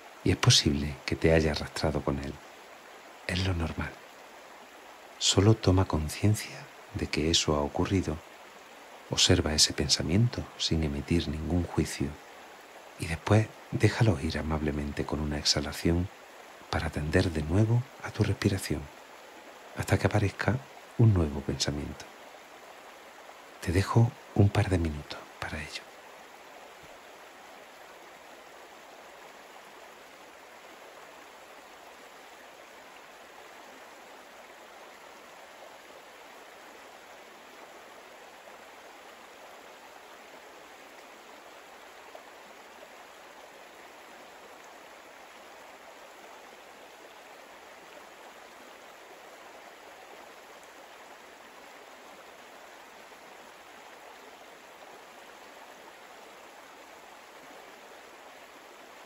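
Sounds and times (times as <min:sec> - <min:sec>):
faint even rushing noise: 0:00.0 - 0:29.6.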